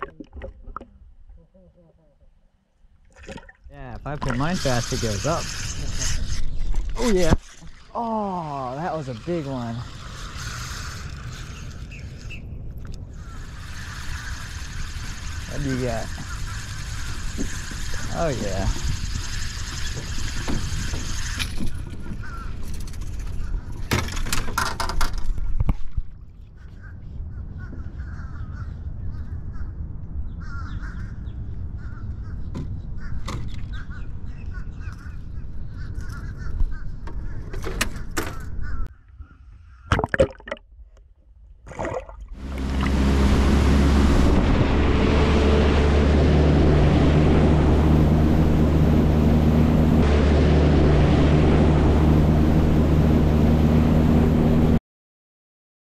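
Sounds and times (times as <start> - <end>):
low rumble of wind and water: 0.0 - 54.8
birds calling: 4.0 - 24.0, 26.5 - 40.0
loud steady drone: 42.4 - 54.8.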